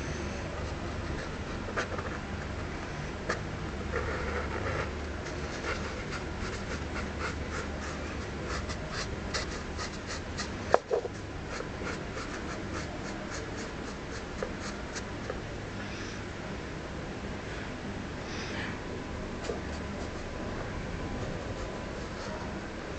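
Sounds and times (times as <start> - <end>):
low steady hum: 0.0 - 22.9
pen scratching drawing strokes: 3.3 - 15.4, 19.4 - 20.4.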